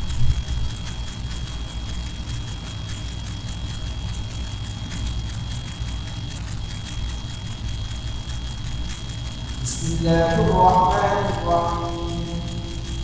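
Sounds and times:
high-pitched whine: 0.0 - 13.0
low rumble and hum: 0.0 - 13.0.

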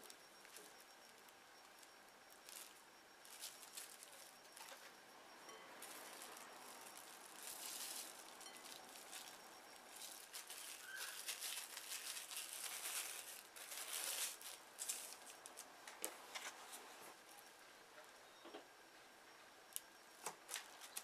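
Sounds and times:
cling film crinkling: 0.0 - 5.0, 5.7 - 16.5, 20.2 - 21.0.

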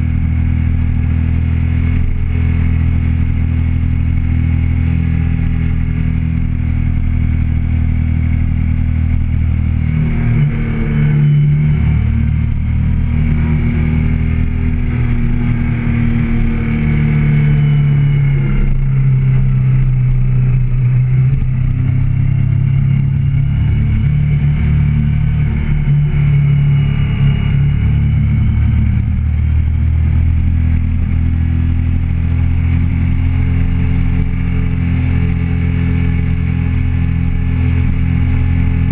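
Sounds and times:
motorcycle engine running: 0.0 - 38.9.

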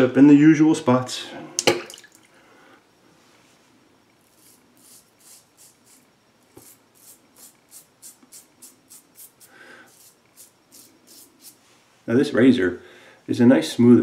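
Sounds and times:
razor scraping through stubble: 4.2 - 11.6.

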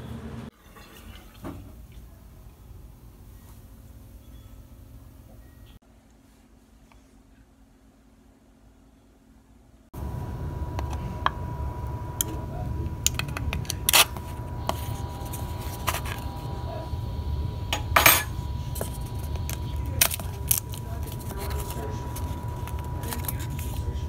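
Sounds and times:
faint high whine: 10.0 - 24.0
steady low rumble: 10.0 - 24.0.

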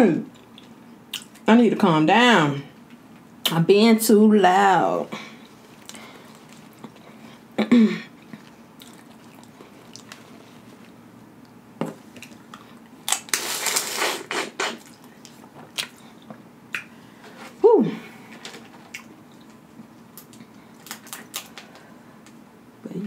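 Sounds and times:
soft chewing: 0.3 - 1.4, 5.3 - 13.0, 14.8 - 17.0, 18.3 - 22.4
person humming: 17.6 - 18.2.

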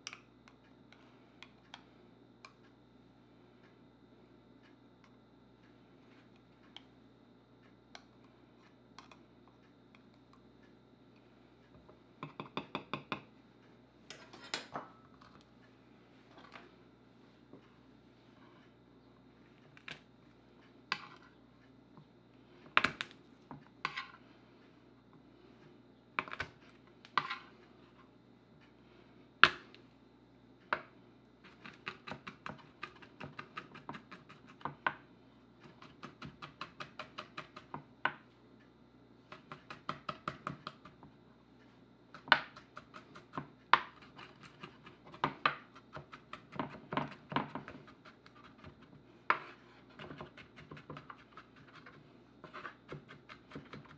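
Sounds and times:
knife chopping on wooden board: 35.6 - 37.7.

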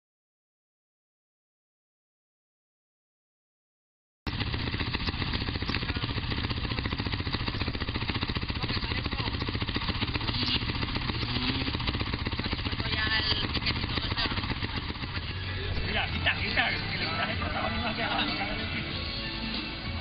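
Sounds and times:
dirt bike engines idling: 4.3 - 20.0.

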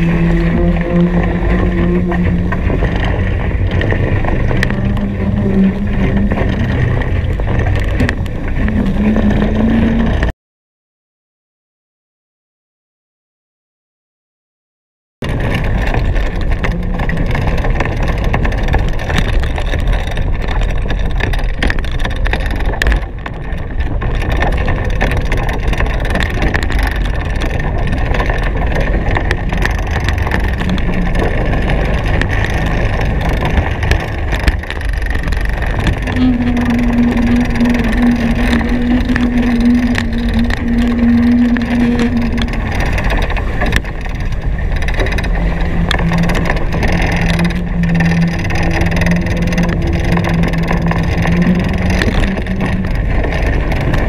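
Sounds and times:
steady humming tone: 0.0 - 10.3, 25.9 - 54.0
wind buffeting microphone: 0.0 - 10.3, 15.2 - 54.0.

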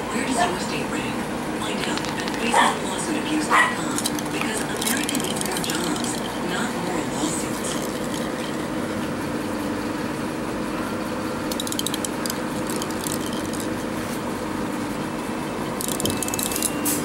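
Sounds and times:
low room hum: 0.0 - 17.0
plastic toy ball rattling: 1.8 - 2.6, 3.8 - 6.7, 7.3 - 8.7, 11.5 - 13.8, 15.8 - 16.8.

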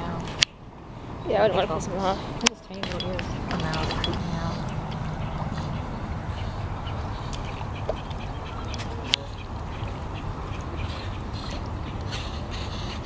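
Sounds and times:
steady low rumble: 0.0 - 13.0
ducks quacking: 3.6 - 13.0.

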